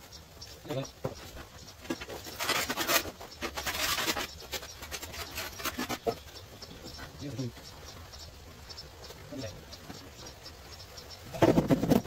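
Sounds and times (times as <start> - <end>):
tool scraping mortar and tile: 1.8 - 6.3.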